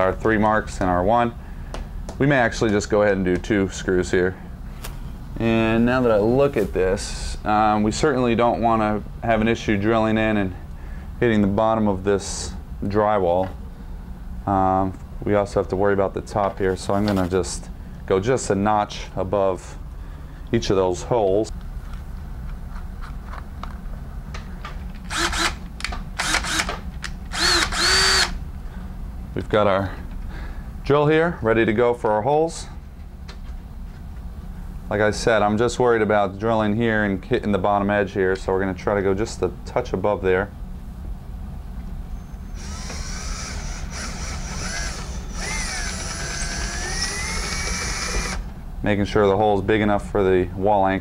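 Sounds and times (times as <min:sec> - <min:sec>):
cordless drill motor whining: 0:25.1 - 0:25.6, 0:26.2 - 0:28.4, 0:42.5 - 0:48.5
drill bit clicking into chuck: 0:25.1 - 0:28.4, 0:42.6 - 0:48.4.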